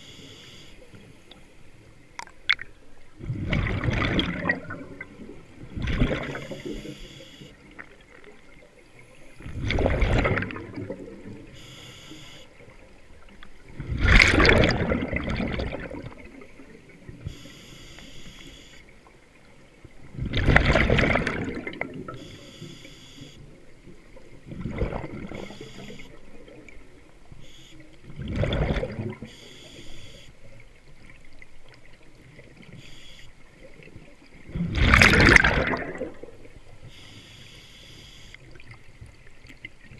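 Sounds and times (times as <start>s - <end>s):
bubbling exhaled air underwater: 2.2s - 17.5s, 19.9s - 22.7s, 23.9s - 32.8s, 33.4s - 37.4s
regulator hiss: 11.5s - 12.5s, 17.3s - 18.8s, 22.2s - 23.4s, 32.8s - 33.3s, 36.8s - 38.4s.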